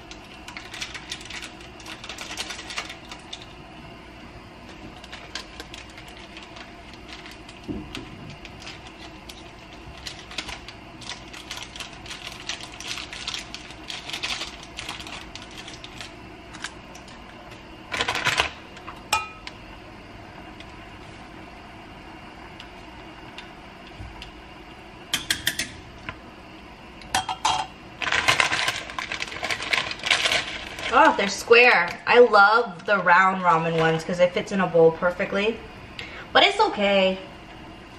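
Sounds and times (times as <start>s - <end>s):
seasoning packets crinkling: 0.0s - 3.5s, 4.7s - 18.5s, 28.0s - 34.1s
steady low hum: 0.0s - 37.9s
plastic wrapper tearing: 0.1s - 3.5s, 4.7s - 17.2s, 17.9s - 18.6s, 28.0s - 32.0s.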